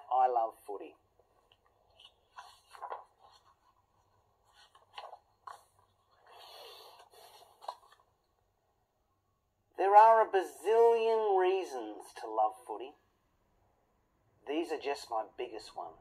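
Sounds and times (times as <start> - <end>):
book pages rustling: 1.2 - 8.4.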